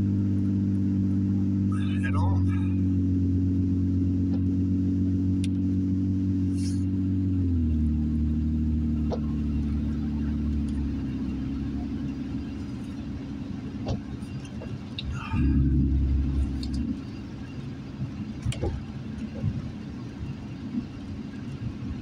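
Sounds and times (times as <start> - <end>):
car engine and tyre noise: 0.0 - 22.0.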